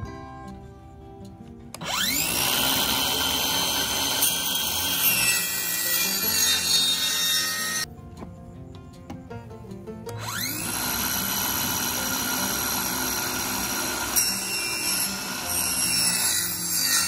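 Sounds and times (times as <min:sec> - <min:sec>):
circular saw cutting plywood: 0:01.8 - 0:07.9, 0:10.1 - 0:17.0.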